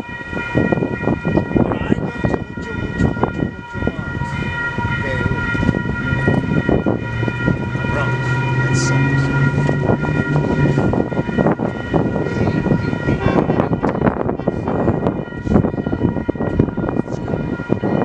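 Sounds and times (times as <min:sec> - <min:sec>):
distant train approaching: 0:00.0 - 0:18.0
low engine hum: 0:05.7 - 0:13.1.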